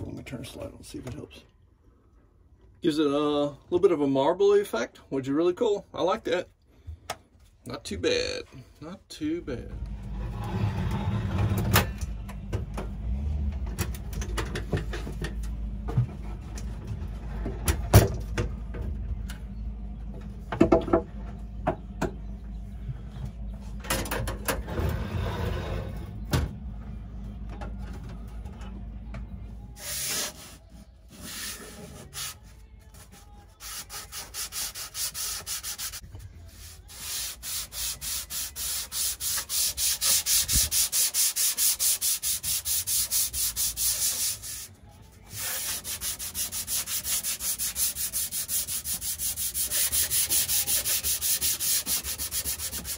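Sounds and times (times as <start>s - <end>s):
low steady hum: 4.9s - 52.9s
hand sanding wooden countertop: 33.2s - 52.9s.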